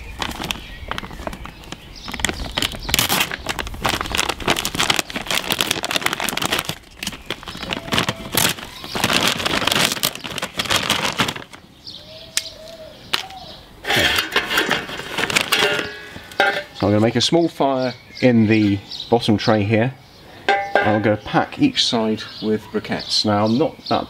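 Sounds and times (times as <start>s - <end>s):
paper bag crinkling and rustling: 0.0s - 11.7s, 13.9s - 16.9s.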